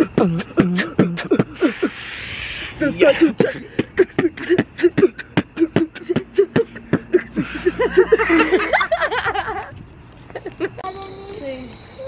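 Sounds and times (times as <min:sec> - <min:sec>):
people laughing: 0:03.0 - 0:09.7, 0:10.3 - 0:10.8.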